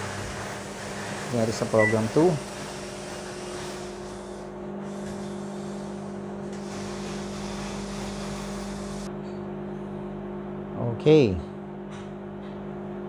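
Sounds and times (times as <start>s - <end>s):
microwave oven hum: 0.0s - 13.0s.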